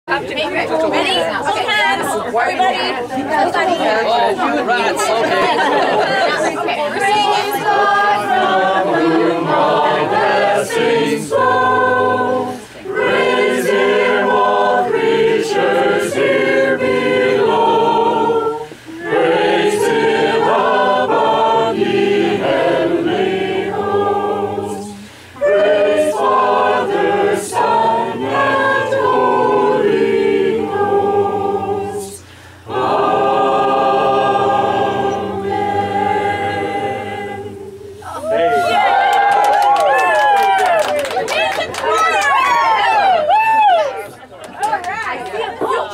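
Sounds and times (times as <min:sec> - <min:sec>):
group singing a cappella: 0:03.2 - 0:38.5.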